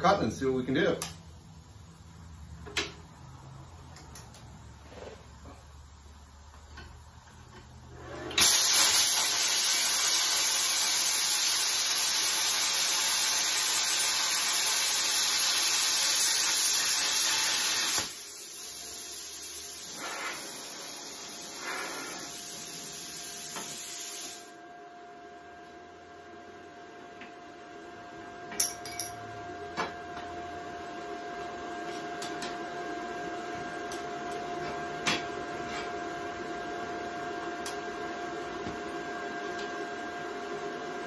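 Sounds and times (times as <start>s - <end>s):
plasma cutter arc hissing: 8.4s - 24.6s.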